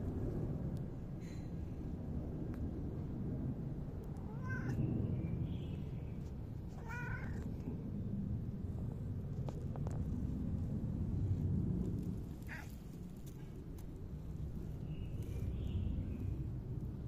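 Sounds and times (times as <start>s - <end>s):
low rumble: 0.0s - 17.0s
cat meowing: 4.3s - 4.8s, 6.8s - 7.5s.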